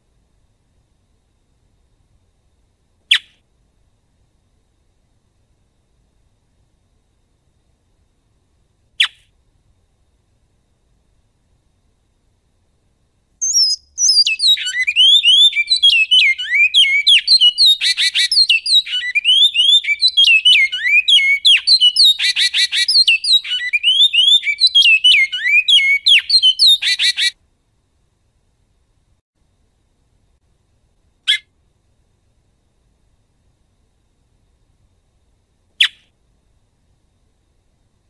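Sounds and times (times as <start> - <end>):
finch singing: 13.4 - 27.3.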